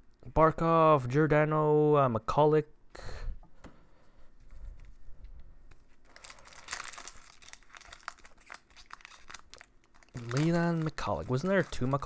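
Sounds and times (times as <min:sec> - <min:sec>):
foil wrapper crinkling and tearing: 0:06.0 - 0:12.0.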